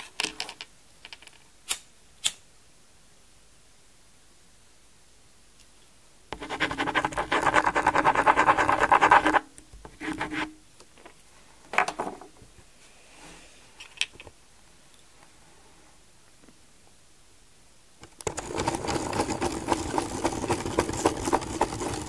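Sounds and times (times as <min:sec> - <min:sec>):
plastic drawing pieces scratching: 0:06.4 - 0:09.4, 0:18.2 - 0:22.0
plastic pieces scraping and clicking: 0:18.0 - 0:22.0.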